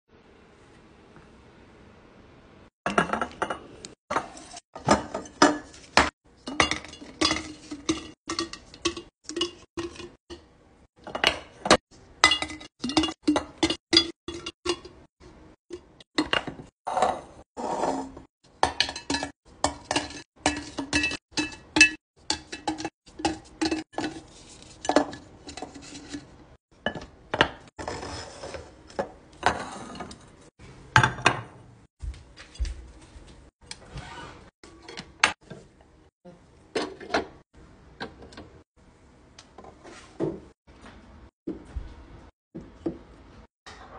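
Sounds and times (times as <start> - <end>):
glass jars clinking on countertop: 2.9 - 10.4.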